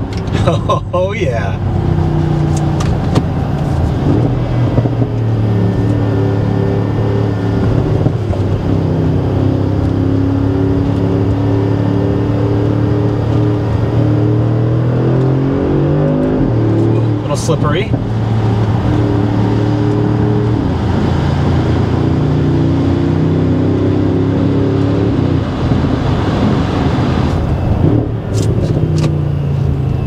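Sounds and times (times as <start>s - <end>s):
car engine accelerating: 0.0s - 30.0s.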